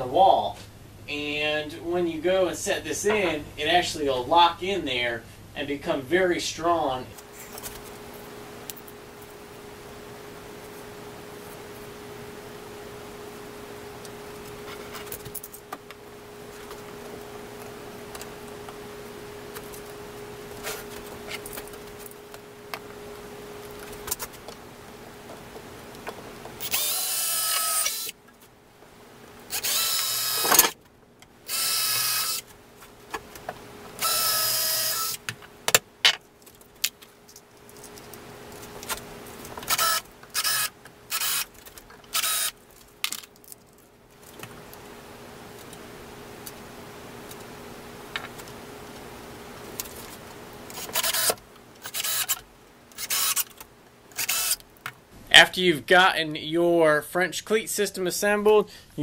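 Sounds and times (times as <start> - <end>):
faint hum: 0.0 - 59.0
cordless drill whining: 26.6 - 28.1, 29.5 - 30.7, 31.5 - 32.4, 34.0 - 35.2, 39.7 - 41.5, 42.1 - 42.5, 50.8 - 52.4, 53.0 - 53.5, 54.2 - 54.6.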